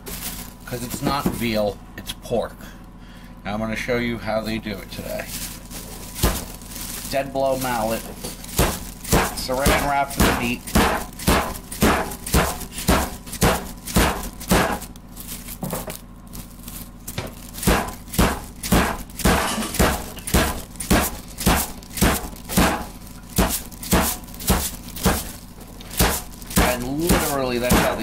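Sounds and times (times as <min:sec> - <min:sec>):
mallet thudding meat on countertop: 0:08.2 - 0:14.9, 0:17.2 - 0:25.4, 0:26.0 - 0:28.0.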